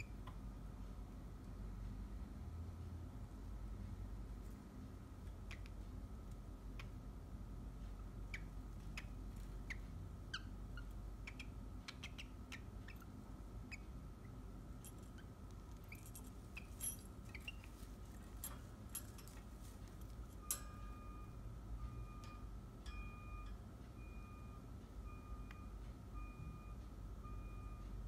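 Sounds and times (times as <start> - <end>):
cockatiel chirps and clicks: 5.4 - 5.8, 8.3 - 13.1.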